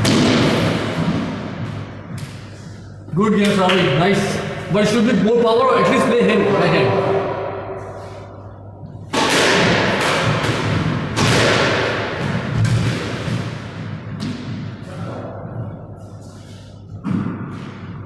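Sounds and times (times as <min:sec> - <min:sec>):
squash ball hitting rackets and walls: 0:00.0 - 0:02.6, 0:07.0 - 0:18.0.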